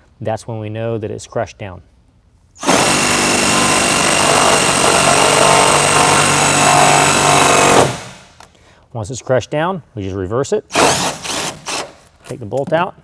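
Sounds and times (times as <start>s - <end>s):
impact driver hammering: 2.6s - 8.3s.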